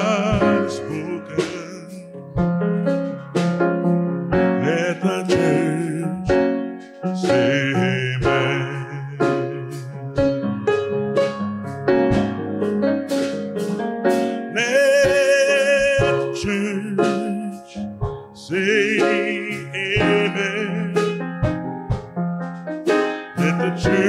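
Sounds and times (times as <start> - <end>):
man singing held notes: 0.0 - 2.1, 4.6 - 6.2, 7.2 - 9.9, 14.2 - 17.8, 18.4 - 21.2, 23.4 - 24.0
drum kit: 0.0 - 24.0
grand piano chords: 0.0 - 24.0.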